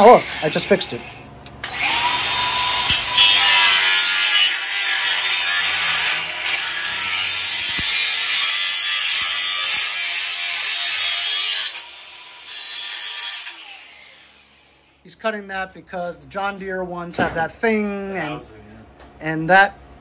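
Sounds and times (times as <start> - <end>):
angle grinder cutting metal: 0.0 - 14.8.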